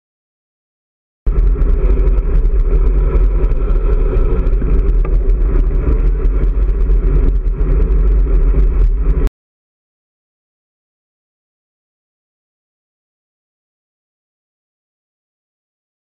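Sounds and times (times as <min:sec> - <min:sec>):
car running alongside: 0:01.3 - 0:09.3
road noise: 0:01.3 - 0:09.3
wind buffeting microphone: 0:01.3 - 0:09.3.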